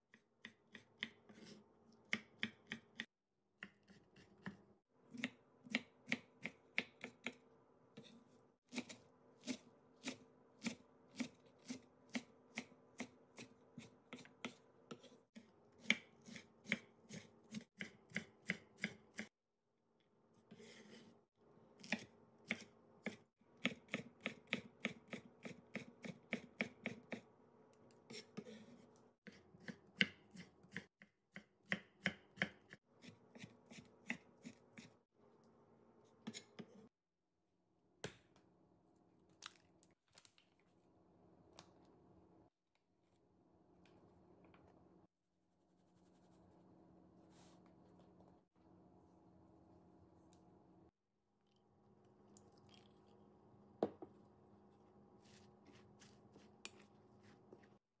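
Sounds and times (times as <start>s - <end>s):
knife chopping on wooden board: 2.1s - 7.4s, 29.3s - 34.9s.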